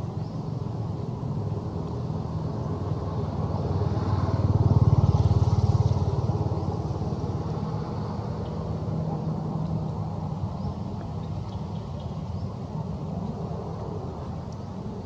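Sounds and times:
passing vehicle engine: 0:02.0 - 0:11.0.

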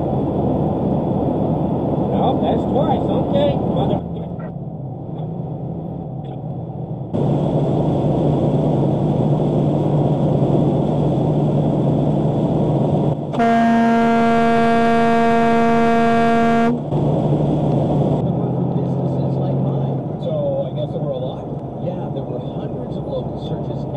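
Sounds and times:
truck engine and road drone: 0:00.0 - 0:23.9
truck horn: 0:13.4 - 0:16.9.

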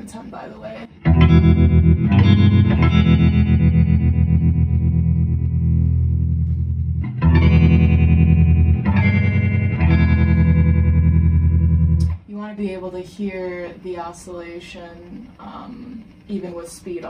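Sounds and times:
electric guitar chords with vibrato: 0:00.9 - 0:12.3.

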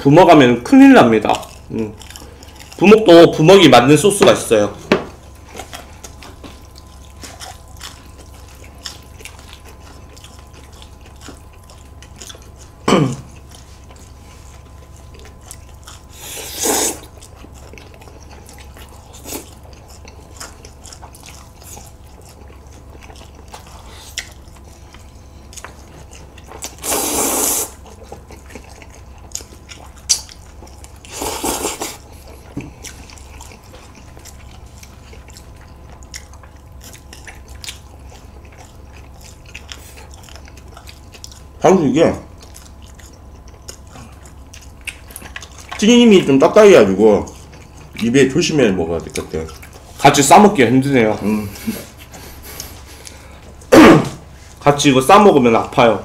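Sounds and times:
faint steady hum: 0:00.0 - 0:56.0
quiet chewing: 0:00.4 - 0:55.9
noodles slurped: 0:16.0 - 0:17.2, 0:26.6 - 0:36.4.

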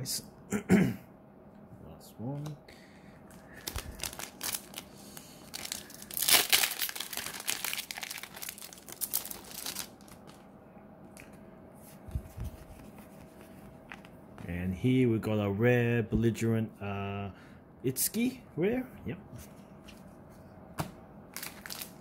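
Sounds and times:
foil pack tearing and crinkling: 0:03.5 - 0:10.4, 0:21.3 - 0:22.0.

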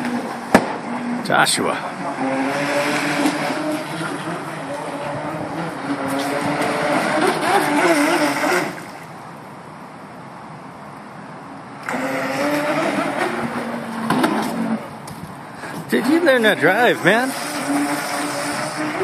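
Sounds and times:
electric motor whining: 0:00.0 - 0:09.0, 0:11.8 - 0:15.0, 0:15.9 - 0:19.0.

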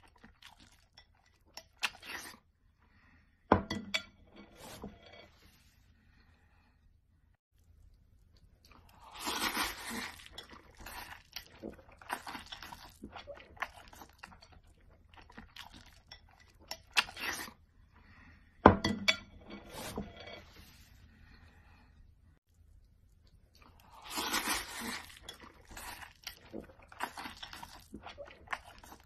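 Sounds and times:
noodles slurped and chewed: 0:00.0 - 0:02.5, 0:07.6 - 0:17.8, 0:22.5 - 0:29.0.

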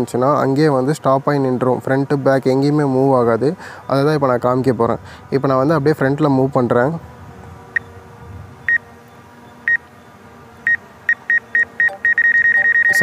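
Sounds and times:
short high warning beeps: 0:10.7 - 0:13.0.

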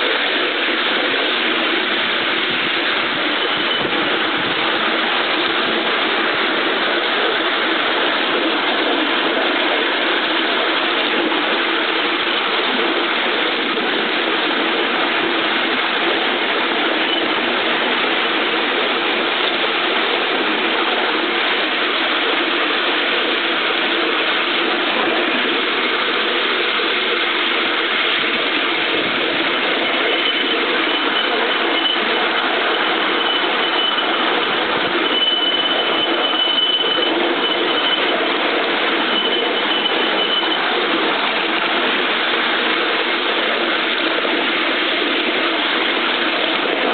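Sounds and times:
steam locomotive clattering: 0:00.0 - 0:46.9
faint high steady tone: 0:28.3 - 0:42.1.

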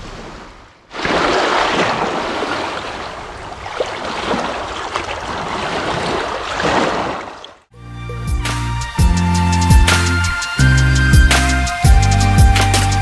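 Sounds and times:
small waves splashing over stones: 0:00.9 - 0:07.7.

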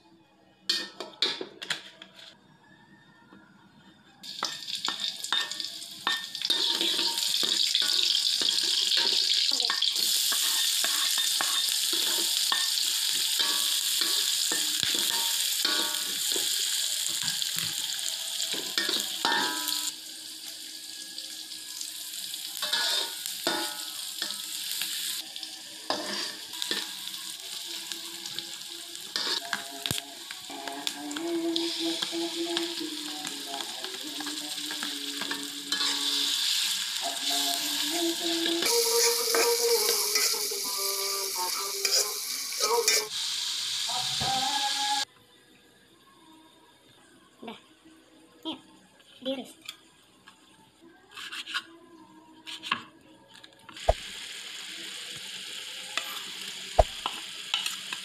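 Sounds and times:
onion sizzling in hot oil: 0:04.2 - 0:45.0, 0:53.8 - 0:58.0.

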